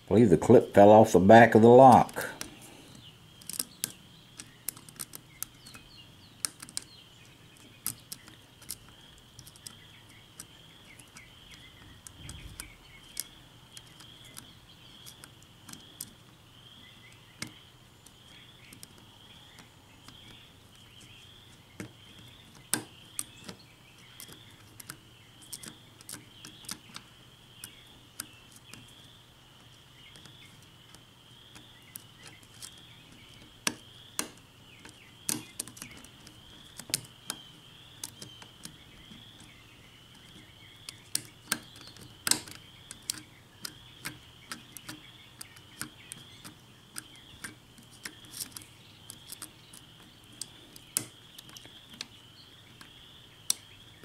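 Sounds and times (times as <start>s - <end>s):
lock pin metallic clicks: 33.6s - 36.0s, 40.9s - 49.8s.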